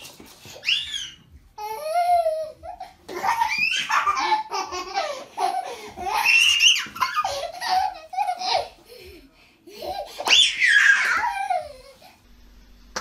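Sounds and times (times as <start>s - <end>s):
child squealing: 0.6s - 1.2s, 6.0s - 7.8s, 10.2s - 11.8s
people laughing and giggling: 2.6s - 10.2s.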